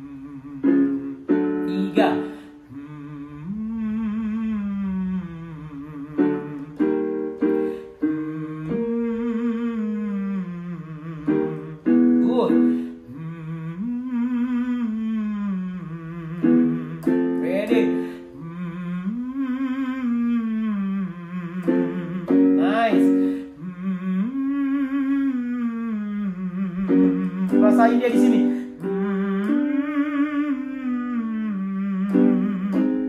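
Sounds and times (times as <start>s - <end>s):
keyboard chords: 0.0s - 15.1s, 15.7s - 19.8s, 20.9s - 24.9s, 26.2s - 33.0s.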